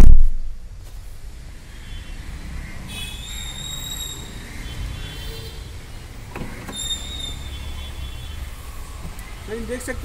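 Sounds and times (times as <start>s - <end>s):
thin high squeaky tones: 6.7s - 8.0s.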